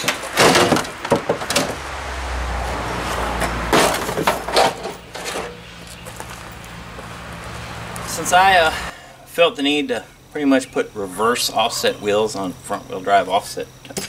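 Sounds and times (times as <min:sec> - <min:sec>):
metal clanking: 0:00.0 - 0:01.8, 0:03.4 - 0:05.7.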